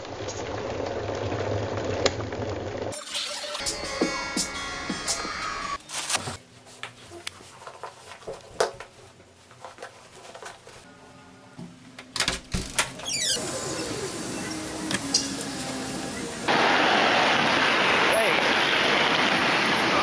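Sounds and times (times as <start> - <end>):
short falling squeak: 13.0 - 15.4.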